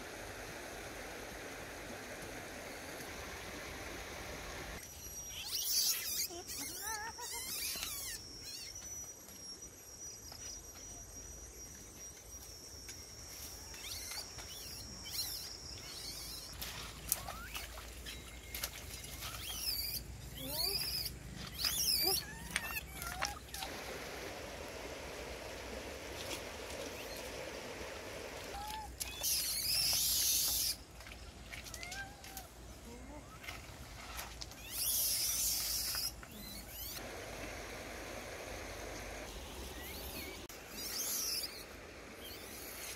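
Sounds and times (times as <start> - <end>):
high squeaky animal calls: 5.0 - 9.1, 19.2 - 23.7, 28.5 - 30.8, 34.6 - 37.0
steady high whine: 23.7 - 28.6, 37.0 - 40.5.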